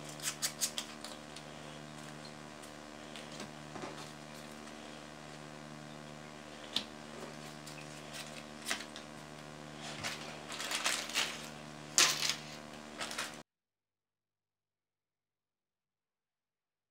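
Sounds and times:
faint steady hum: 0.0 - 13.4.

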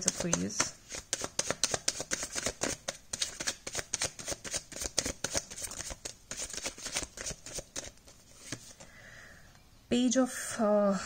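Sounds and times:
cards being shuffled: 0.0 - 8.8.

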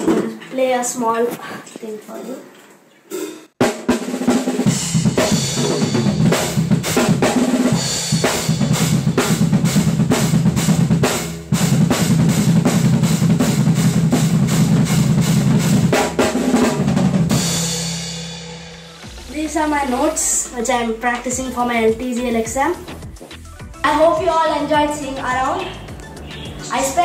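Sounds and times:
fast drum rolls and fills: 3.6 - 23.2.

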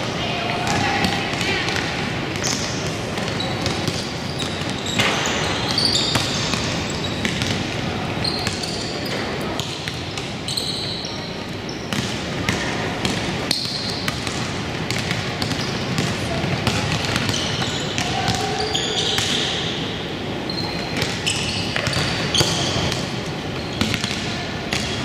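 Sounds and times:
basketball bouncing on court: 0.5 - 11.0, 11.9 - 19.5, 20.8 - 25.0
sneaker squeaks: 2.4 - 25.0.

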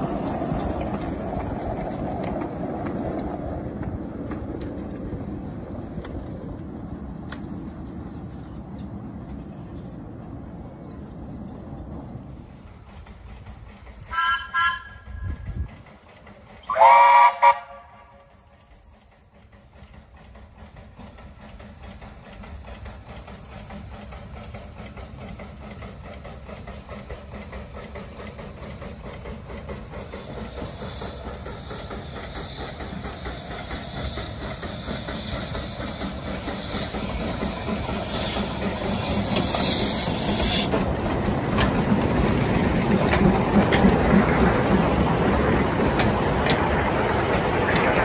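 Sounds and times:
steam locomotive chuffing: 0.0 - 48.0
steam hissing: 12.3 - 48.0.

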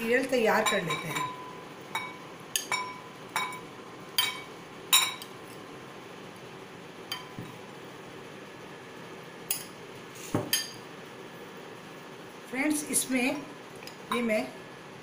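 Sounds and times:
spoon clinking against glass bowls: 0.5 - 5.3.

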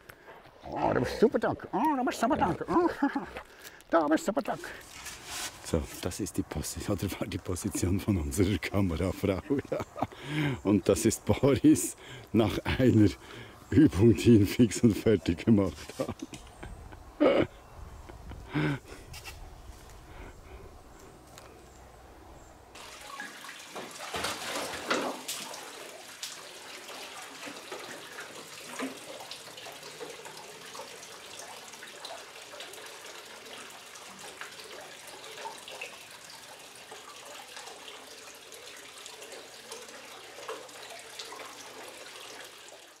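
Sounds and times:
water pouring into metal bucket: 22.8 - 43.0.

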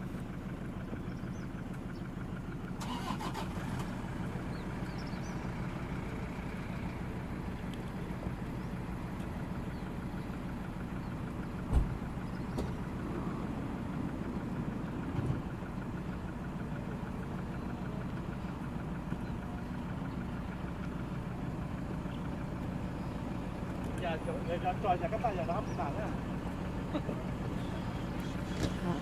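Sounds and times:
van engine idling: 0.0 - 29.0
loud thump: 11.7 - 12.0.

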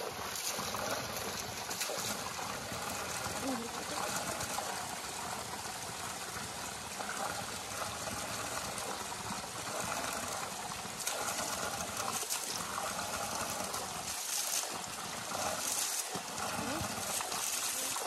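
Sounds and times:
water splashing onto stones: 0.0 - 4.8, 11.0 - 18.0.

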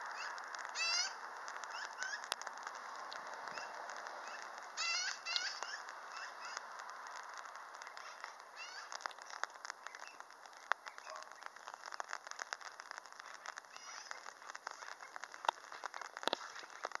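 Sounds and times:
magpies chattering: 0.0 - 2.4, 3.4 - 6.7, 7.8 - 17.0.

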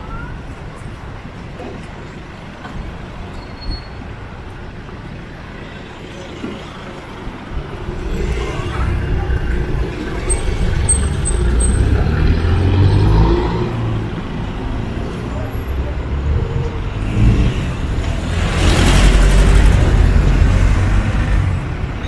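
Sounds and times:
street traffic: 0.0 - 22.0
diesel engine rumble: 6.8 - 22.0.

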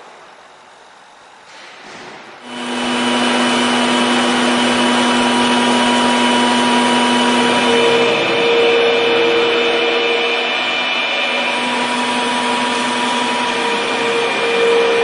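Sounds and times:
milling machine whine: 2.4 - 15.0.

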